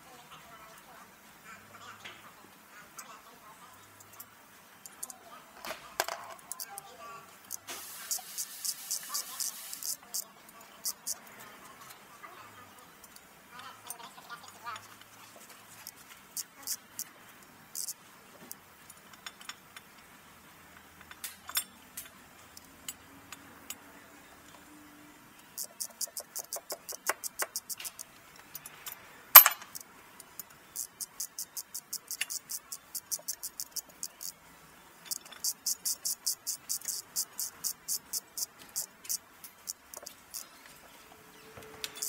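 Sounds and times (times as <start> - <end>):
ratchet wrench clicking: 7.5 - 10.2, 10.8 - 11.2, 15.9 - 17.1, 17.7 - 18.0, 25.6 - 28.8, 29.4 - 34.4, 35.0 - 40.5
metal tool clinking on metal: 21.0 - 22.1, 28.6 - 29.8.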